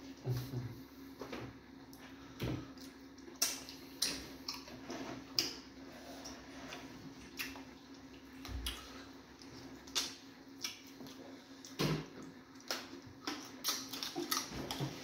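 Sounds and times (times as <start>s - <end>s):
steady low hum: 0.0s - 15.0s
wet mouth smacks and chewing: 9.4s - 11.8s, 12.6s - 14.9s.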